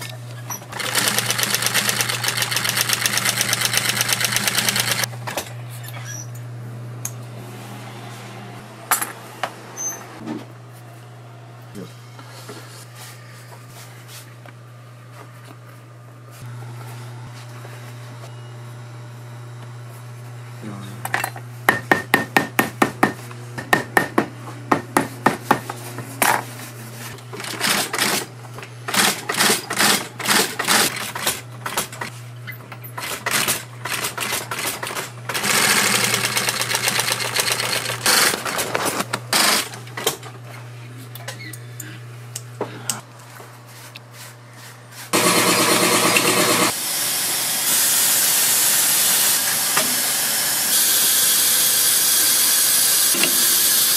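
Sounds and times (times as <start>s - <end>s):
machine hissing: 45.1s - 53.9s.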